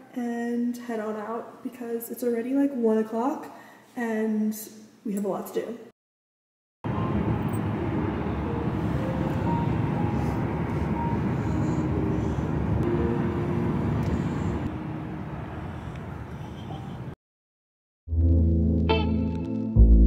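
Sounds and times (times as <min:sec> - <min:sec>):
car cabin road and engine noise: 0:06.9 - 0:17.2.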